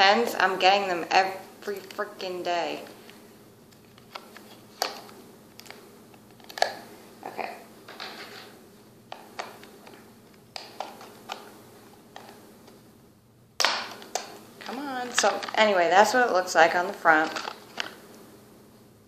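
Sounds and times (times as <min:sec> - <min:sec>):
packaging crackles: 0:13.6 - 0:15.8, 0:17.1 - 0:18.0.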